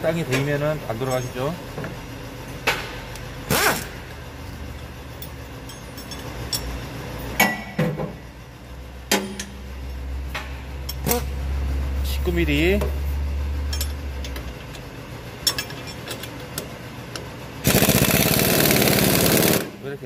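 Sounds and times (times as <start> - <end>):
metal tools clinking: 0.2 - 1.6, 3.8 - 6.8, 13.6 - 16.7
low hum: 0.8 - 17.8.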